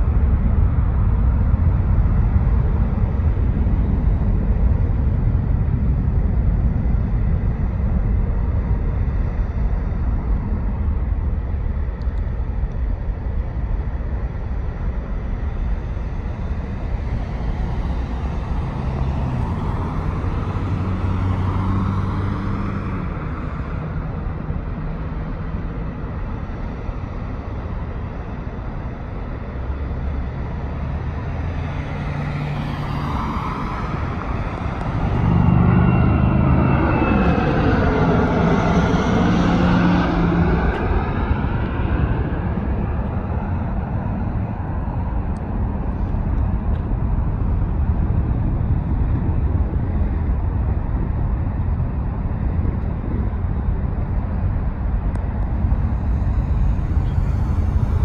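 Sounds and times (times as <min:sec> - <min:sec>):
steady low rumble: 0:00.0 - 0:58.0
jet passing overhead: 0:16.0 - 0:24.5, 0:30.2 - 0:46.6, 0:55.2 - 0:58.0.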